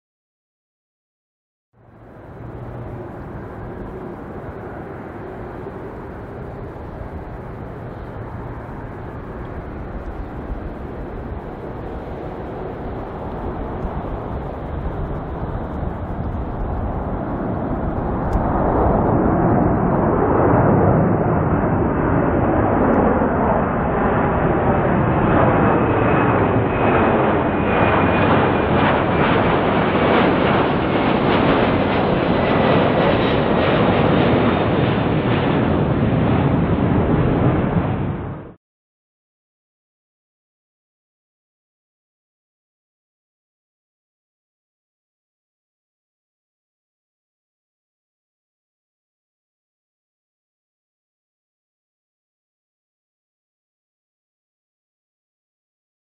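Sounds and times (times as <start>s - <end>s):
high jet whine falling in pitch: 1.8s - 38.6s
jet airliner taking off: 1.8s - 38.6s.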